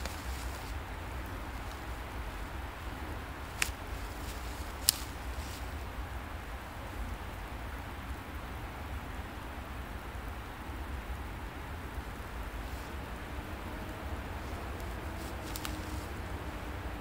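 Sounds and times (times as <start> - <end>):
even hiss: 0.0 - 7.0.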